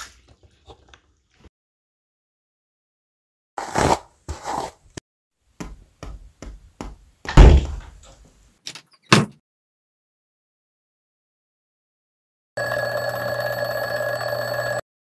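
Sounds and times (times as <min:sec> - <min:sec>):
heavy door thud: 0:07.3 - 0:07.9.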